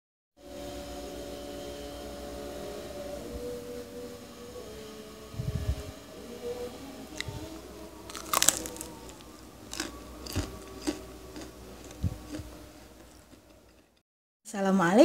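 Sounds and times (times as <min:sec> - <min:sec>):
pastry crunching: 0:08.0 - 0:14.0.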